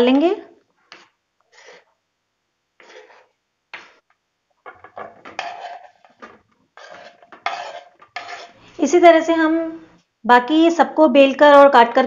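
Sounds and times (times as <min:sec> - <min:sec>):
knife scraping wooden board: 0:02.8 - 0:03.3, 0:05.3 - 0:06.2, 0:06.8 - 0:08.6.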